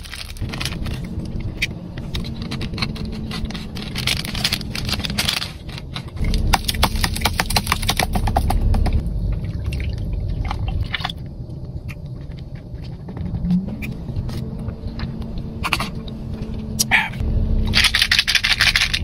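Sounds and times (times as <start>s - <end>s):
plastic packaging crinkling: 0.0s - 8.0s
low rumble: 0.0s - 19.0s.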